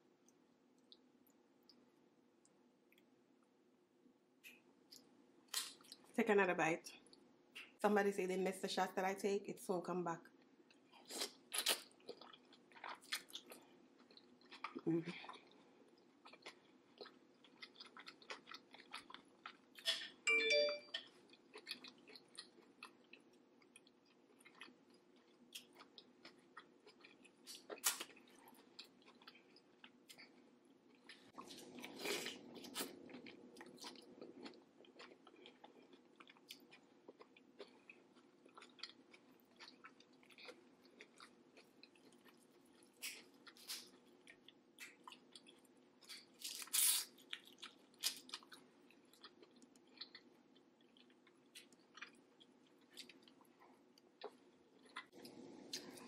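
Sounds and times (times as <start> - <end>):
wet chewing and mouth clicks: 10.6 - 20.0, 21.0 - 56.0.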